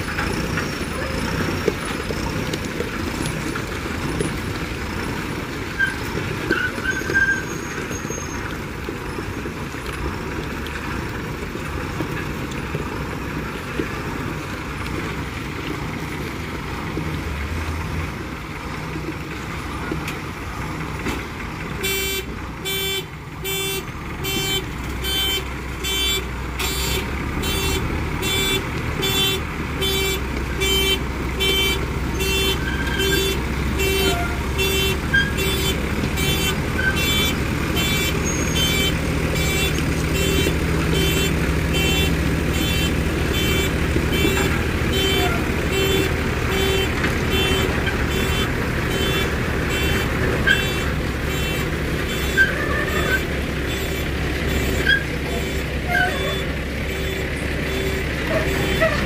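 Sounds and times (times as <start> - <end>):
diesel engine running: 0.0 - 59.0
reverse alarm beeping: 53.1 - 58.9.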